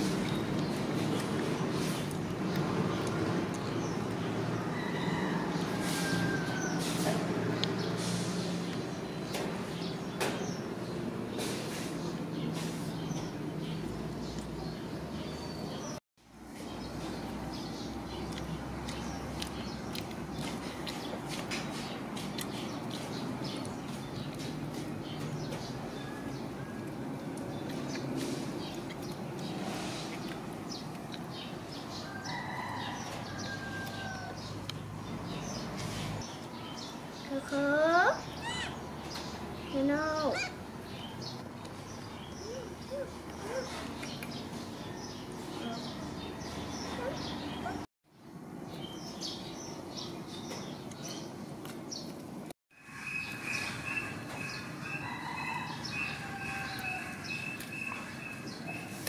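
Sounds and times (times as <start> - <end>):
small birds chirping: 0.0 - 59.0
rooster crowing: 4.6 - 7.0, 32.0 - 34.6, 54.0 - 57.6.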